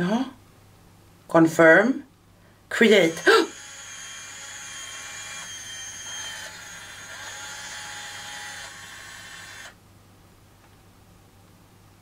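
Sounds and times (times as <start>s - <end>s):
machine high mechanical whine: 2.9s - 9.8s.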